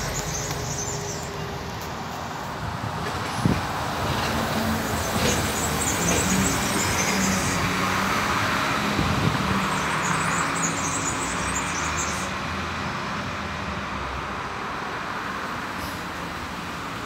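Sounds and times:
vehicle engine hum: 0.0 - 11.2
road traffic noise: 0.0 - 17.0.

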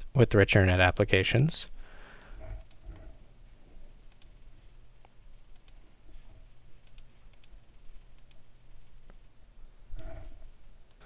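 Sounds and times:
low steady hum: 0.0 - 11.0
computer mouse clicks: 2.4 - 3.2, 4.0 - 4.4, 5.0 - 5.8, 6.8 - 9.2, 9.9 - 10.3.

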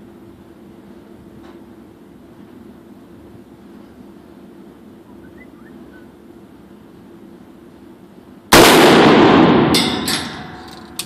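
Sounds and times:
rifle shot indoors: 8.5 - 10.4.

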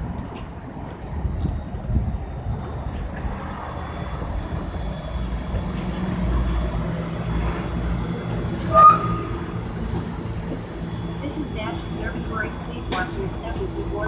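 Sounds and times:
electric bus humming: 0.0 - 14.0
street traffic: 0.0 - 14.0.

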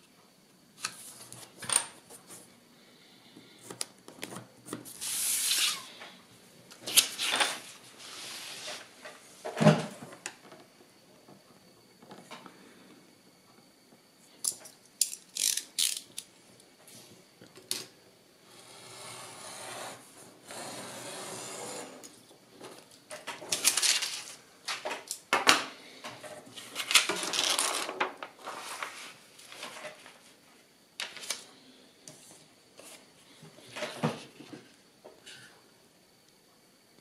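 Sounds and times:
paper rustling: 26.6 - 30.3.

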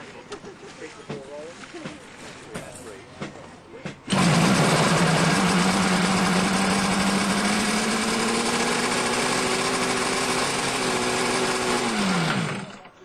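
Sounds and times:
two-stroke boat engine running: 4.0 - 13.0.

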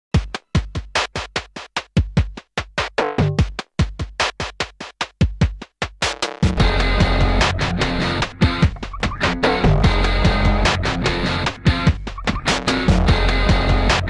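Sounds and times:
kick drum thumps: 0.1 - 6.7
electronic drum beat: 0.1 - 14.0.

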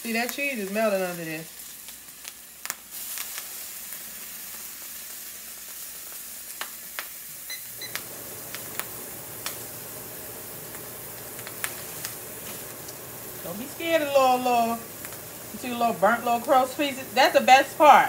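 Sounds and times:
butter and bread sizzling: 0.0 - 18.0
sharp pops from pan: 2.2 - 4.6, 6.0 - 9.7, 10.7 - 13.1, 14.9 - 15.4
vent fan humming: 6.6 - 18.0
microwave keypad beeps: 7.5 - 8.0.

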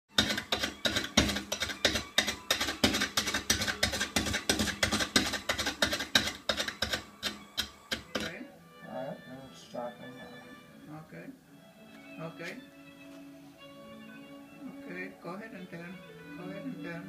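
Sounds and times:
gouge knocking and scraping wood: 0.1 - 8.4.

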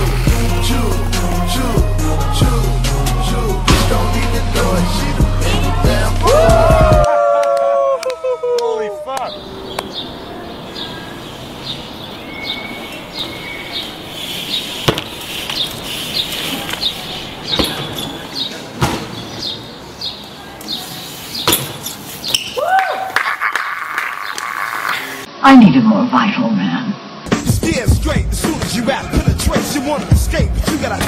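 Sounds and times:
outdoor hiss: 11.2 - 17.4
bike tyres knocking on ledges: 14.8 - 15.6, 17.5 - 18.2, 21.4 - 22.5.

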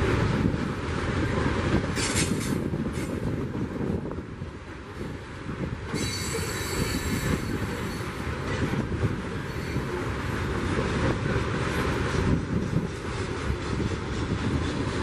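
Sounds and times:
freight train wheels rumbling: 0.0 - 15.0
high-pitched wheel squeal: 5.9 - 8.2.

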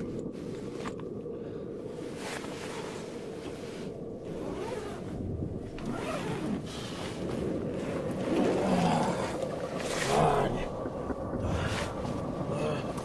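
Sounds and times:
low background rumble: 0.0 - 13.0
tent fabric rustling: 1.9 - 10.0
zipper being pulled: 4.2 - 5.2, 5.8 - 7.1.

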